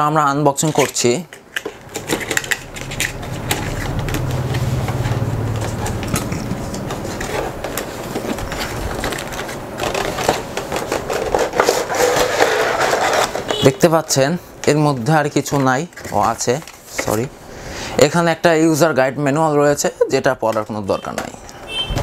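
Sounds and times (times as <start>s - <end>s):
low hum: 1.8s - 8.7s
cardboard box scraping and rustling: 1.9s - 13.6s.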